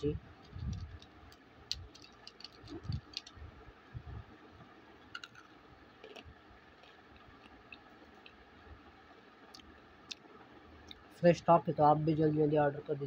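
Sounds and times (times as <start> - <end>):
clay pieces clicking on steel plate: 1.7 - 3.3.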